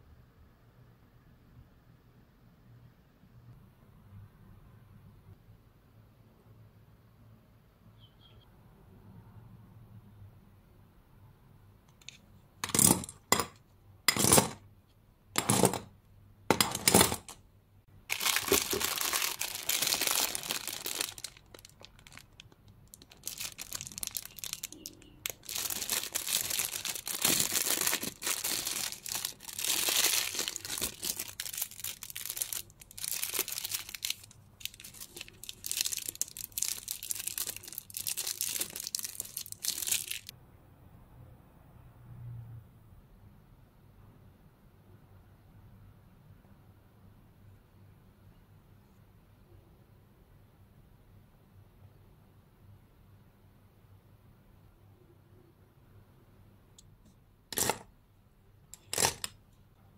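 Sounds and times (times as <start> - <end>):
plastic packaging crinkling: 18.1 - 40.3.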